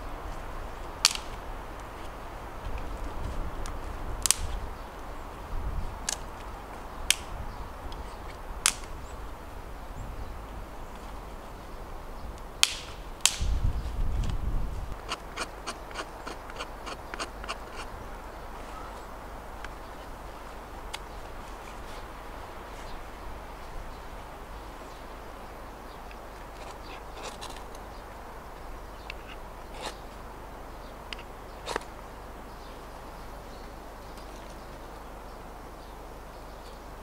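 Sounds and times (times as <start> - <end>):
dry wood cracking: 0.8 - 4.7, 6.0 - 9.0, 12.6 - 17.9, 26.1 - 27.9.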